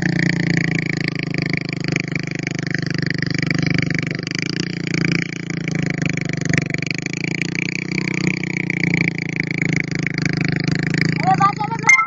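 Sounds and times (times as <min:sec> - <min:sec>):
small motorcycle engine revving: 0:00.0 - 0:12.0.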